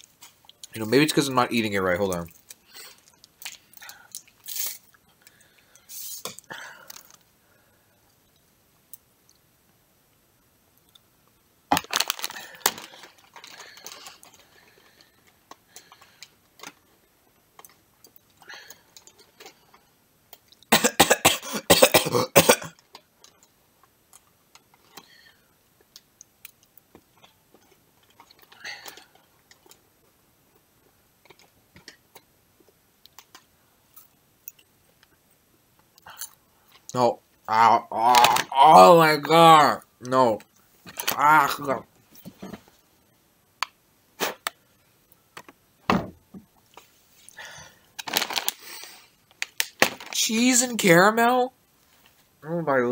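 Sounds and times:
popcorn crunching: 11.7 - 16.9, 37.8 - 39.4, 47.3 - 50.5.

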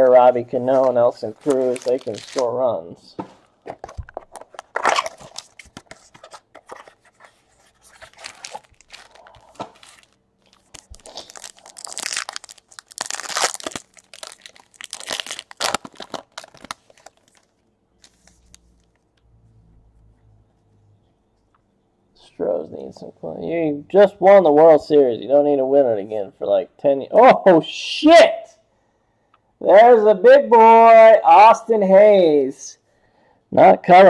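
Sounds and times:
foil wrapper crinkling and tearing: 0.8 - 2.6, 3.8 - 6.0, 7.7 - 19.0.

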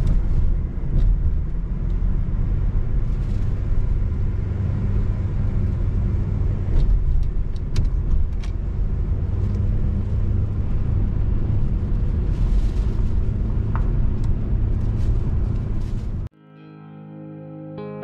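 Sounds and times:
car engine and road rumble: 0.0 - 16.3.

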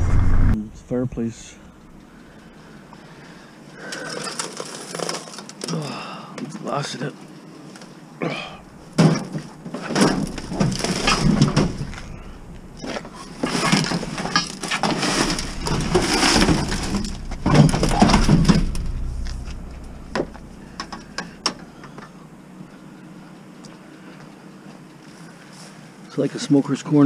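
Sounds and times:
broken glass crunching: 8.9 - 21.5
scrap metal scraping and knocking: 8.9 - 22.0.

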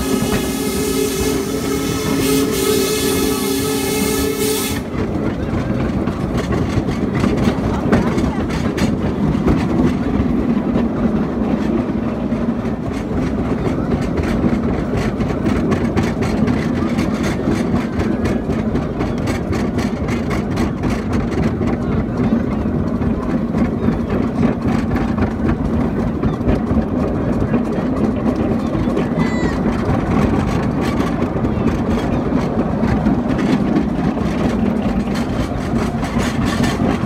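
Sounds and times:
miniature train engine drone: 0.0 - 37.0
wheel rumble: 0.0 - 37.0.

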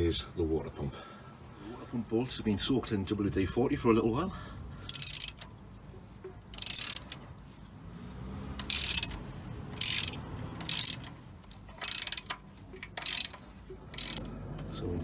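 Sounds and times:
socket ratchet clicking: 4.9 - 5.5, 6.6 - 7.2, 8.6 - 9.2, 9.8 - 13.4, 14.0 - 14.3.

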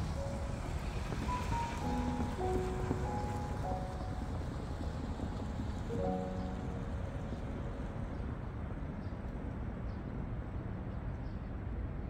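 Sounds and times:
background music: 0.0 - 8.8
low outdoor rumble: 0.0 - 12.0.

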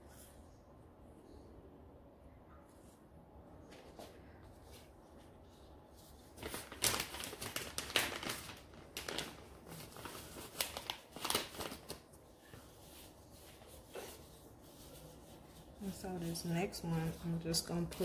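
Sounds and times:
plastic crinkling and rustling: 3.7 - 18.0.

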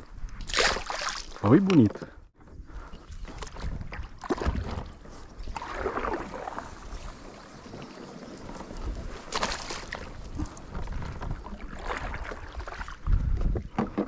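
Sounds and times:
water splashes: 0.4 - 1.9, 3.2 - 13.2
water lapping against kayak hull: 2.4 - 14.0
wind buffeting microphone: 2.4 - 14.0.

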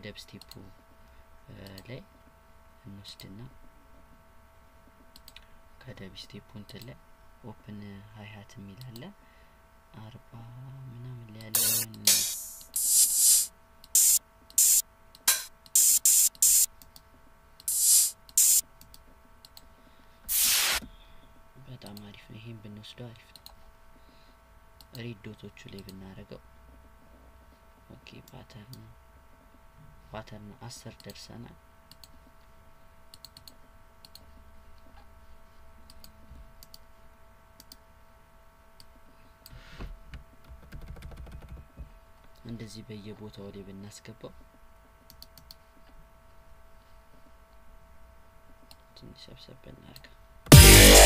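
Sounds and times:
faint electrical hum: 0.0 - 51.0
faint mouse clicks: 5.2 - 5.5, 18.8 - 19.7, 31.9 - 32.2, 33.1 - 34.3, 35.9 - 36.8, 37.6 - 37.8, 45.1 - 45.6
open hi-hat cymbal hits: 11.6 - 16.7, 17.7 - 18.6, 20.3 - 20.8, 50.5 - 51.0
computer mouse clicking: 33.1 - 34.3, 45.1 - 45.6.

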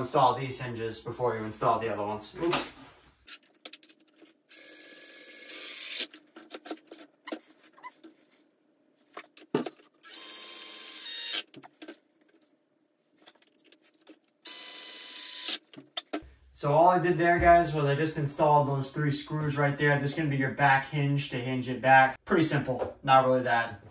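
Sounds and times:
cordless drill driving screws: 4.5 - 6.1, 10.0 - 11.5, 14.5 - 15.6.

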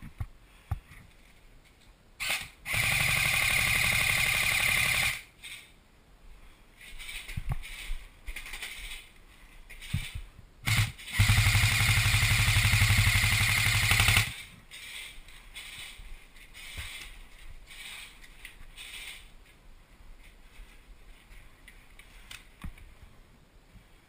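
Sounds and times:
airsoft gun rapid firing: 2.2 - 5.3, 10.6 - 14.5.

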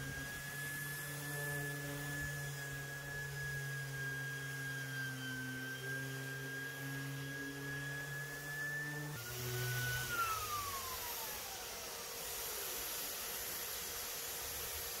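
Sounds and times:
electric orbital sander running: 0.0 - 15.0.

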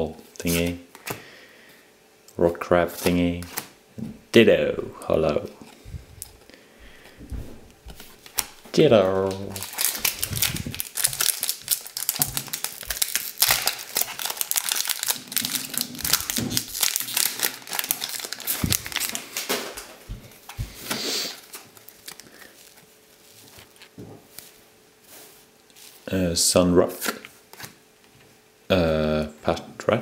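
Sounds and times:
foil wrapper crinkling: 7.9 - 19.9, 21.2 - 24.6.

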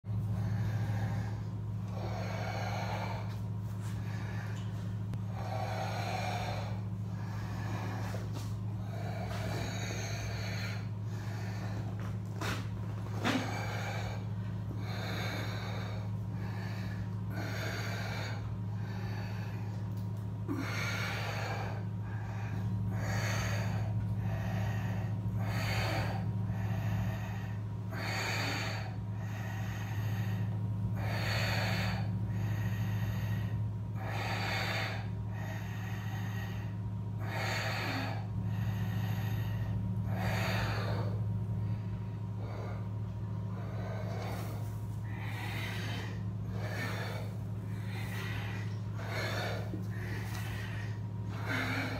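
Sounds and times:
steady low hum: 0.0 - 51.9
noisy throat breathing: 0.1 - 51.9.

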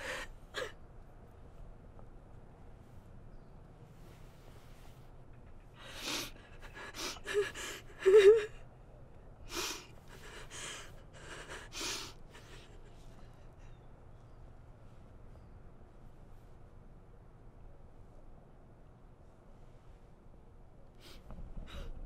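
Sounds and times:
woman sobbing: 0.0 - 0.8, 5.8 - 8.6, 9.5 - 13.3.

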